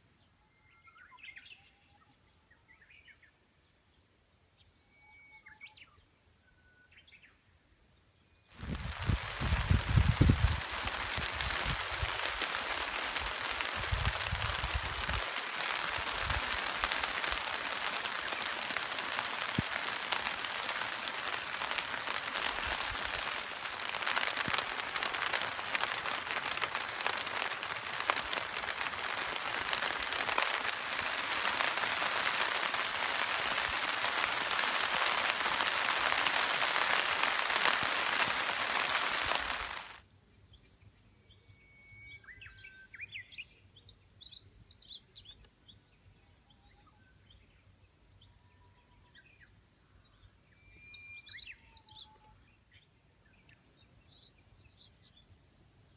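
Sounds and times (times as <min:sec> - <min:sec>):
wind rumble on microphone: 0:08.6 - 0:12.3, 0:13.2 - 0:15.3
rain pattering on plastic: 0:08.6 - 0:40.0.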